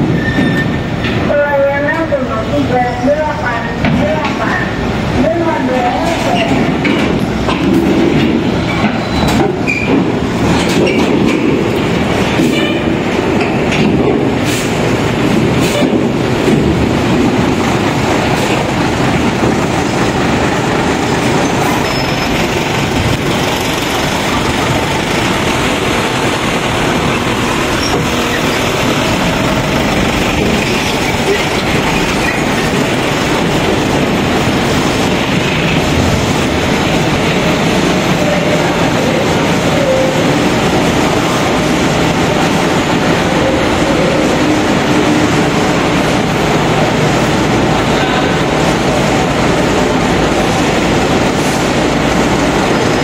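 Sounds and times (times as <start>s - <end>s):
machinery rumble: 13.1s - 53.0s.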